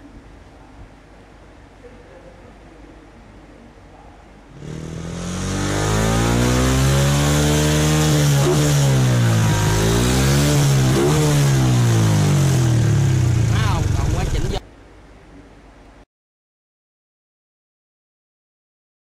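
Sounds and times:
motorcycle engine revving: 0:04.5 - 0:14.6.

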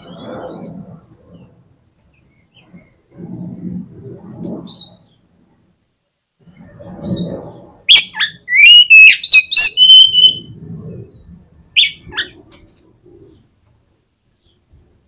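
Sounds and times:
bird singing whistles and clicks: 0:07.9 - 0:10.4.

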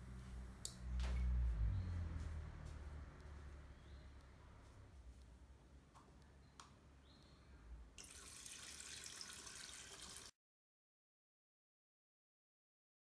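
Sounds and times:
water splashing into plastic basin: 0:08.0 - 0:10.3.

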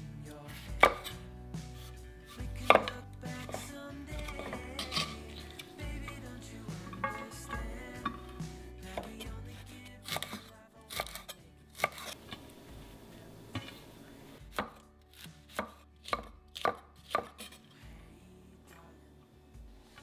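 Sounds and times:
knife chopping on wooden board: 0:00.8 - 0:01.2, 0:02.4 - 0:05.7, 0:10.1 - 0:12.2, 0:14.5 - 0:17.6.

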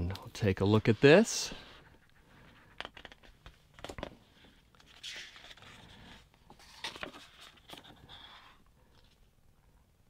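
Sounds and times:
book page turning: 0:02.8 - 0:09.2.

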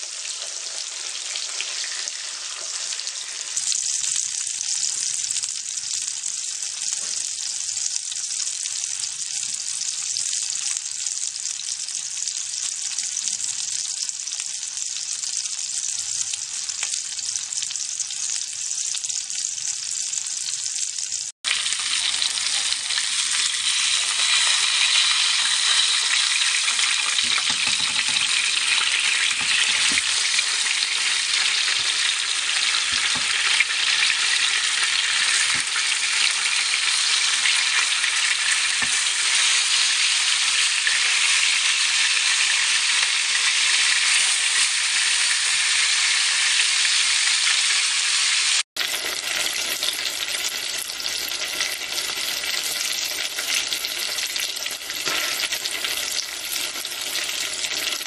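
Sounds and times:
chicken frying in bubbling oil: 0:00.0 - 0:58.0
fish sizzling in a pan: 0:00.0 - 0:58.0
utensil knocking on pan: 0:27.2 - 0:30.1, 0:32.9 - 0:33.6.

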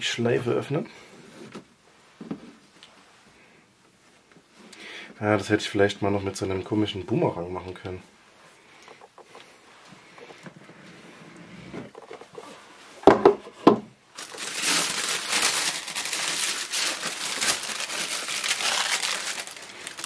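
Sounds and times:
tissue paper crinkling: 0:14.1 - 0:20.0.

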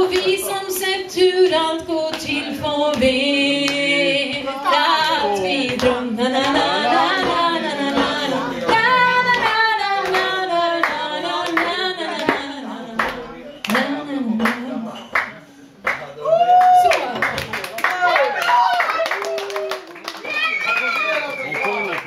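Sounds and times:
woman singing a ballad: 0:00.0 - 0:15.0
people clapping: 0:00.1 - 0:00.4, 0:04.7 - 0:22.0.

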